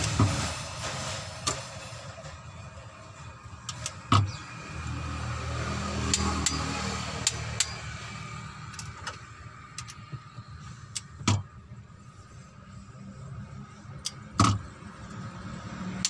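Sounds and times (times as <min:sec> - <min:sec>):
vehicle engine hum: 0:00.0 - 0:16.0
torque wrench clicking: 0:07.2 - 0:07.8.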